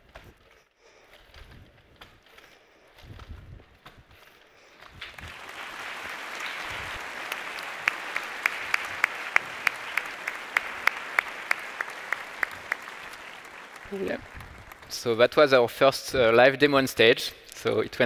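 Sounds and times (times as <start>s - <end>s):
audience applause: 5.0s - 15.6s
single sharp rhythmic claps: 5.1s - 14.9s.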